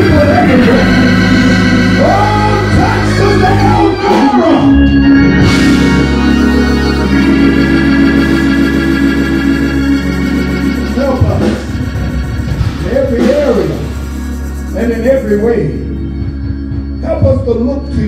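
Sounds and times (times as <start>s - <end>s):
man chanting preaching: 0.0s - 4.8s, 12.8s - 14.0s, 14.7s - 15.9s, 17.0s - 18.0s
organ playing held chords: 0.0s - 18.0s.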